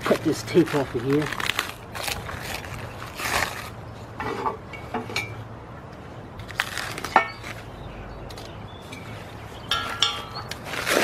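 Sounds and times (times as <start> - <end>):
plastic wrap rustling and tearing: 0.0 - 3.8, 6.4 - 7.1, 10.5 - 11.0
metal pipe clink: 9.7 - 10.6.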